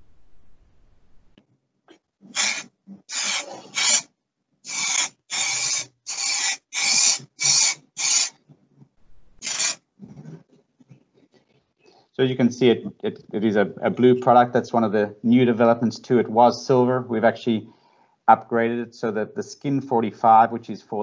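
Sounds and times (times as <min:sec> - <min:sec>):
aerosol spray can hissing: 0:02.3 - 0:04.1, 0:04.7 - 0:08.4, 0:09.4 - 0:09.8.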